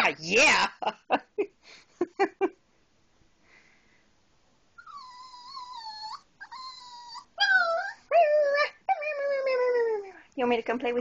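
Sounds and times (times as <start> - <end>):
small dog whining: 4.8 - 10.2.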